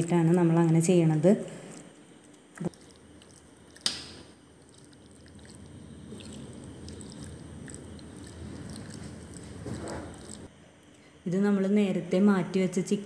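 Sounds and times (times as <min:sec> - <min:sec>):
spoon squishing chicken in marinade: 0:02.2 - 0:10.5.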